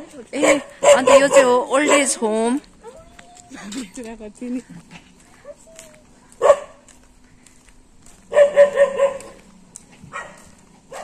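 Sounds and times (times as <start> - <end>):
dogs barking: 0.3 - 3.2, 6.3 - 6.9, 8.3 - 9.5, 10.1 - 11.0.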